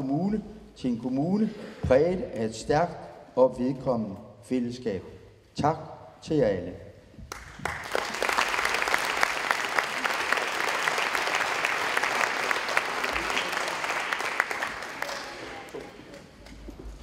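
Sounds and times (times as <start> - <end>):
audience applauding: 7.3 - 16.4.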